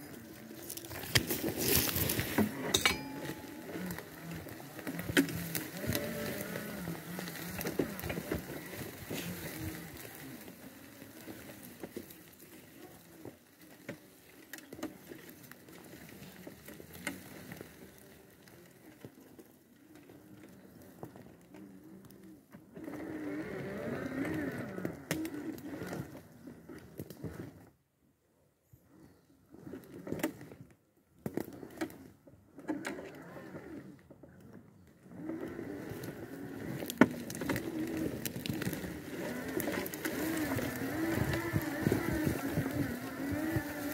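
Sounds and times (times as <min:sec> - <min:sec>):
electric wheelchair motors whining: 0:00.1 - 0:27.5, 0:35.0 - 0:43.9.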